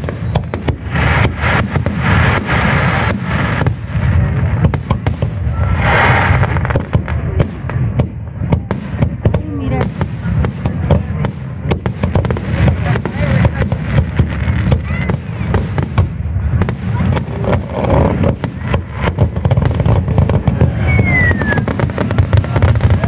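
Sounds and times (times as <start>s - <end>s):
fireworks bursting: 0.0s - 23.0s
low rumble: 5.3s - 9.8s.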